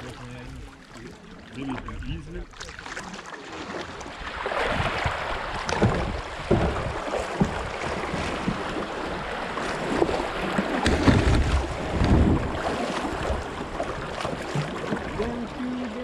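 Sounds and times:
creek water rushing and splashing: 0:00.0 - 0:16.0
low knocks against kayak hull: 0:04.0 - 0:15.2.

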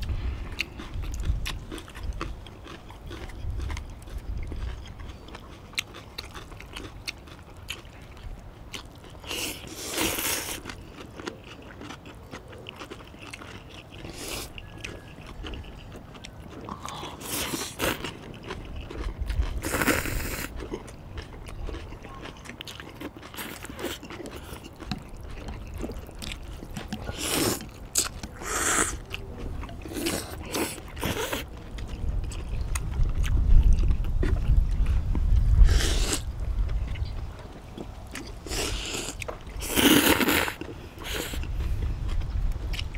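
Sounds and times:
chewing and crunching food: 0:00.0 - 0:42.9
people slurping noodle soup: 0:09.2 - 0:10.6, 0:16.7 - 0:18.1, 0:19.5 - 0:20.5, 0:27.0 - 0:29.1, 0:29.9 - 0:31.5, 0:35.6 - 0:36.3, 0:38.4 - 0:41.7.

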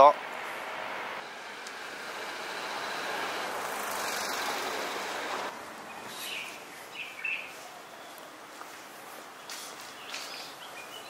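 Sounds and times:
passing vehicle: 0:00.0 - 0:06.4.

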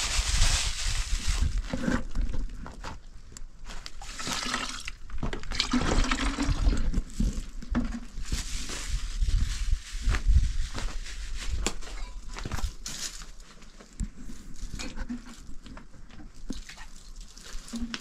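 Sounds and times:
water splashing and sloshing: 0:04.0 - 0:08.1, 0:16.3 - 0:18.0.

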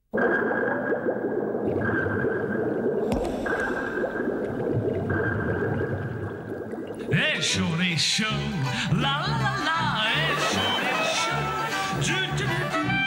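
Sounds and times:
water bubbling in fish tank: 0:00.0 - 0:07.6.

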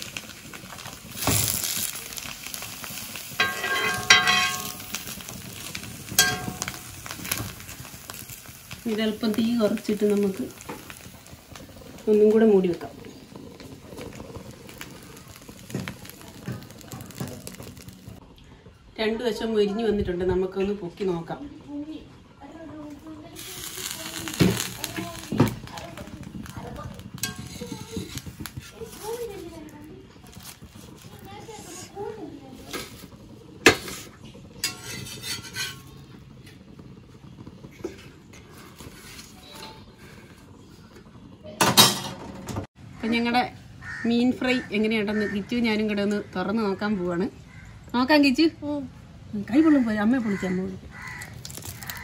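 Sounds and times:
fish sizzling on griddle: 0:00.0 - 0:18.3, 0:21.6 - 0:52.0
metal cookware clattering: 0:03.2 - 0:08.2, 0:27.0 - 0:29.2, 0:33.6 - 0:36.1, 0:41.6 - 0:42.7.

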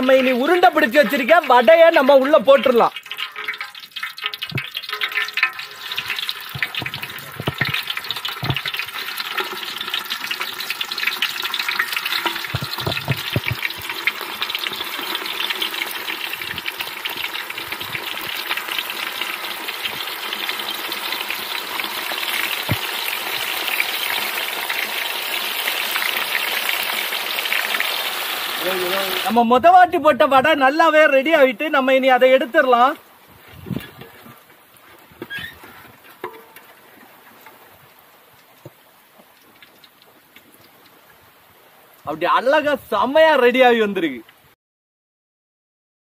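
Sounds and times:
fritters sizzling in hot oil: 0:00.0 - 0:29.4, 0:31.8 - 0:42.2
sharp oil pops: 0:03.4 - 0:05.5.

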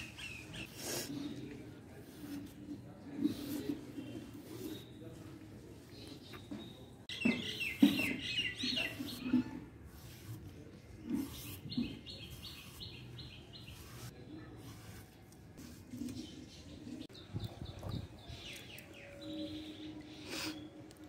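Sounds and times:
small birds chirping: 0:03.2 - 0:10.3, 0:11.0 - 0:15.0, 0:15.6 - 0:20.8.

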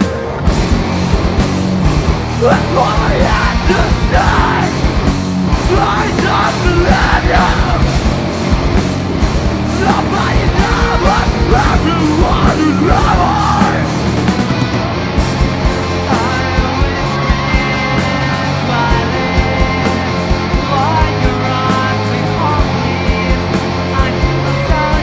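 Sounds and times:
heavy rock band playing live: 0:00.0 - 0:25.0
singer yelling: 0:02.4 - 0:05.0, 0:05.6 - 0:07.9, 0:09.7 - 0:14.0.

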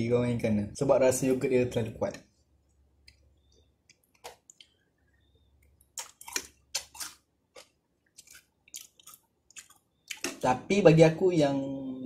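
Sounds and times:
chewing cereal: 0:05.6 - 0:10.4.

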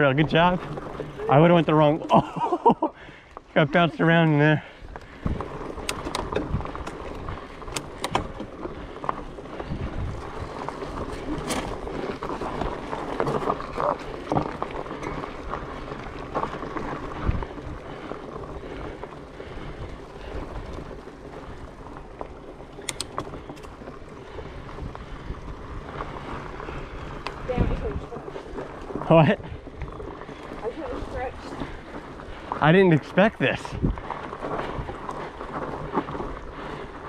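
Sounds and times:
bike tyres rumbling on dirt: 0:00.0 - 0:37.0
clicks and knocks over bumps: 0:04.9 - 0:37.0
wind on microphone: 0:09.6 - 0:10.7, 0:24.4 - 0:28.3, 0:33.7 - 0:35.2.

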